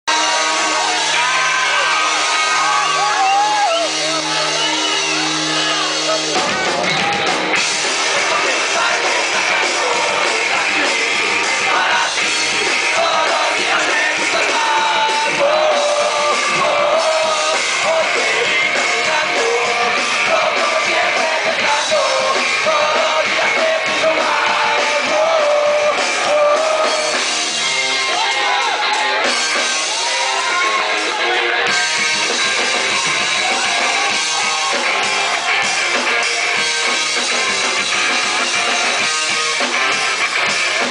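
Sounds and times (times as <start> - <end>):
punk rock band playing: 0.0 - 40.9
drum kit: 0.1 - 40.9
electric guitars: 0.1 - 40.9
person singing: 7.8 - 27.3.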